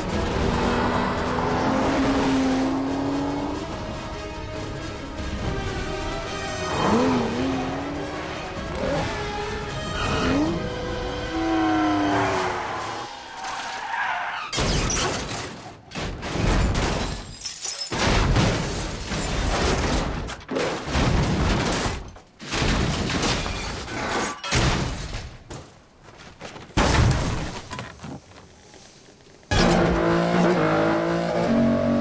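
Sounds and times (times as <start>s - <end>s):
glass shattering: 16.3s - 19.7s.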